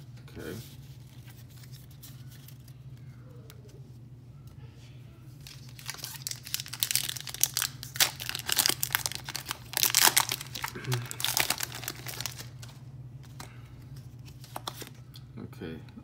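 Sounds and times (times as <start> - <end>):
foil wrapper crinkling and tearing: 5.4 - 13.5.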